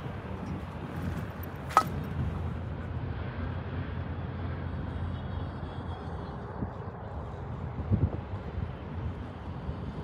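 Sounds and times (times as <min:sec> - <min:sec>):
distant city traffic: 0:00.0 - 0:10.0
wind: 0:00.0 - 0:10.0.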